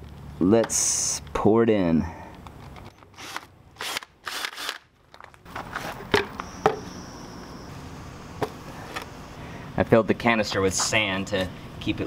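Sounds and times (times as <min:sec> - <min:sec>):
scraping and crunching on gravel: 0:04.9 - 0:06.4.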